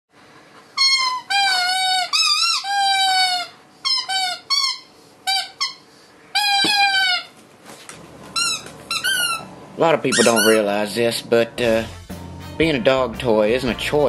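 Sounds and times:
squeaky dog toy squeaks: 0.8 - 7.4, 8.4 - 9.5, 10.1 - 10.8.

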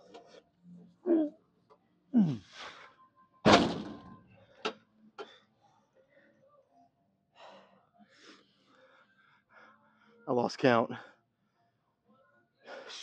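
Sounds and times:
man groaning: 2.2 - 2.5
weight stack thud: 3.5 - 4.1.

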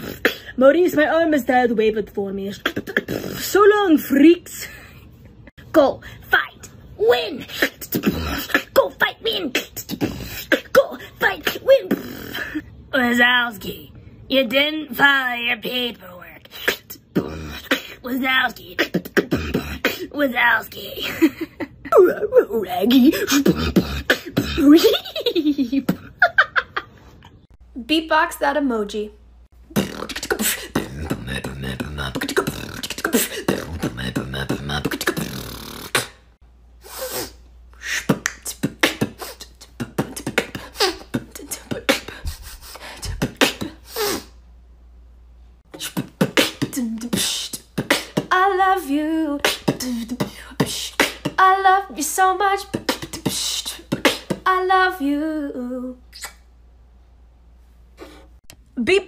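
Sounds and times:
woman beatboxing: 0.0 - 4.6, 5.6 - 13.8, 14.4 - 21.3, 22.0 - 26.2, 29.6 - 36.3, 36.9 - 44.3, 45.7 - 56.5.

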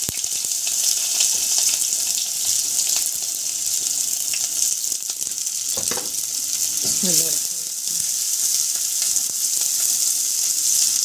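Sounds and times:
onion sizzling in hot oil: 0.0 - 11.0.

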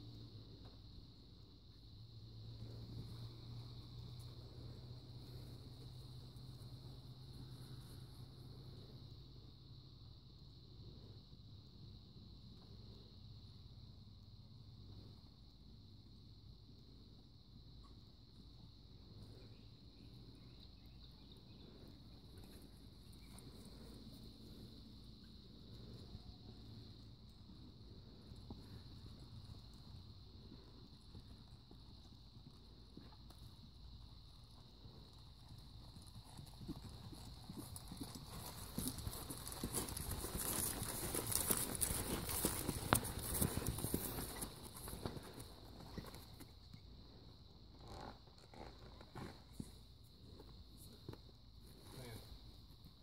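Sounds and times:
crickets chirping: 0.0 - 53.0
horse hooves on grass: 21.6 - 46.9.

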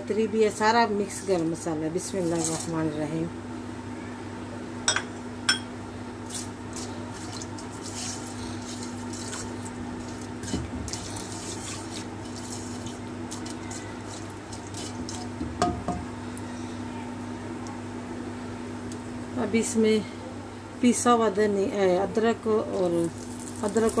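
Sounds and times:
spices sizzling in hot oil: 6.3 - 15.5, 22.9 - 24.0
crackles and pops of frying: 23.1 - 24.0.

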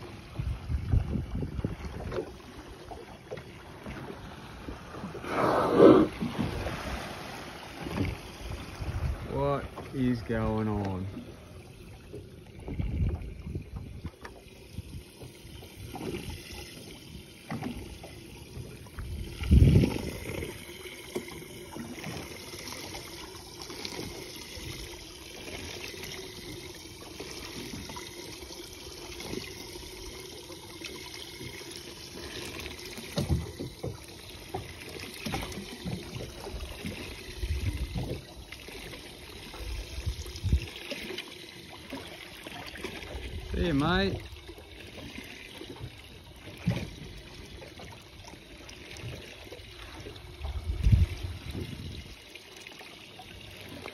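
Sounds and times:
water lapping against boat: 0.0 - 53.9.

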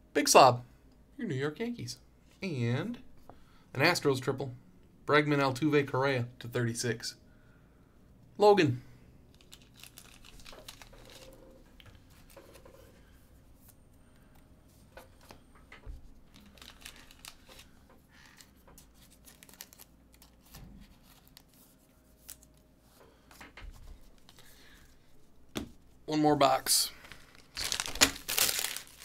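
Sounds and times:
card packaging rustling: 9.3 - 12.8, 16.2 - 22.6, 26.9 - 29.0.

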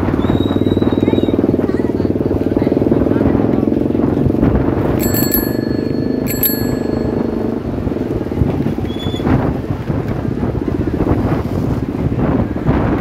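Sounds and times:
bicycle bell ringing: 5.0 - 8.3
wind rumble on microphone: 7.6 - 13.0.

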